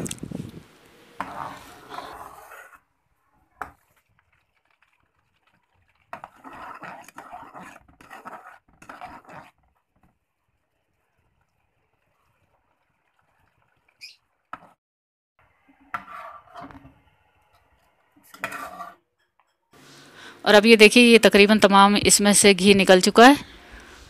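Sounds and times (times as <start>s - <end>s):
spoon stirring in metal pot: 1.1s - 2.8s, 3.6s - 14.8s, 15.7s - 19.6s
butter simmering: 3.4s - 14.7s.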